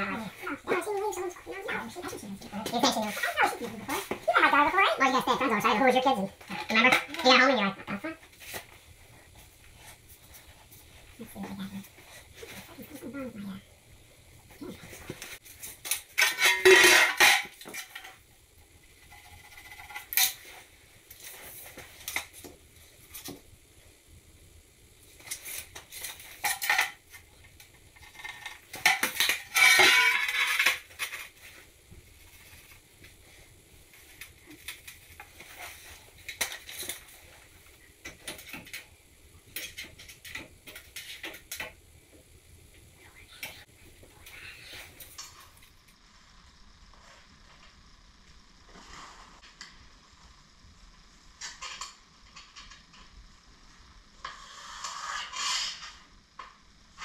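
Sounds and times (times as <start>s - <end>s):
tiles clinking and scraping: 14.6s - 18.2s, 25.2s - 27.2s, 28.0s - 31.6s, 54.2s - 56.6s
tiles clattering: 14.8s - 18.2s, 28.0s - 31.6s.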